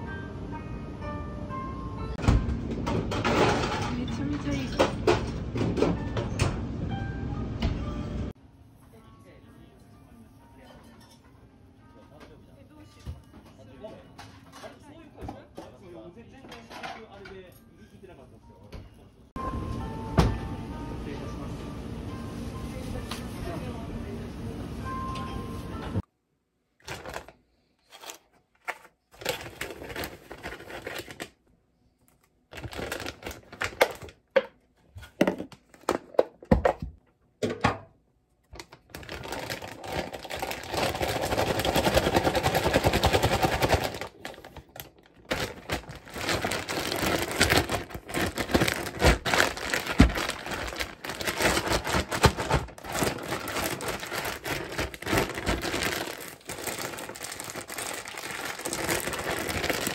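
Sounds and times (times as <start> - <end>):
plastic food bag rustling: 26.8 - 31.4, 32.5 - 34.3, 38.6 - 59.9.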